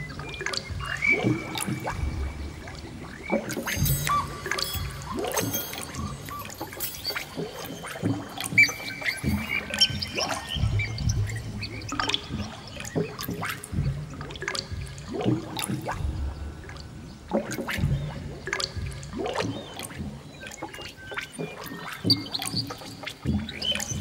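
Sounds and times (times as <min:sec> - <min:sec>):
water gurgling and trickling: 0:00.0 - 0:24.0
ambient music: 0:09.0 - 0:14.4, 0:15.0 - 0:20.2
low swells: 0:10.5 - 0:12.8, 0:15.9 - 0:17.3.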